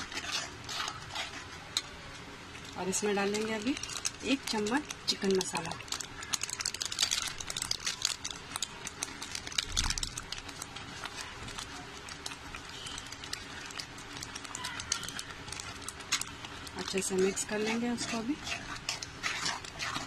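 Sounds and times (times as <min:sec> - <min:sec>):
spoon stirring: 0:00.0 - 0:08.3, 0:12.4 - 0:20.0
thick gravy boiling and spluttering: 0:00.0 - 0:20.0.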